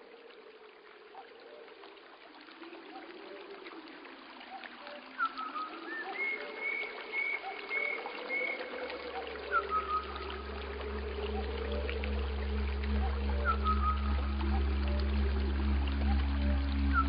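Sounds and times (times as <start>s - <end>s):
trickling flowing water: 0.0s - 17.0s
slow gliding low tones: 7.7s - 17.0s.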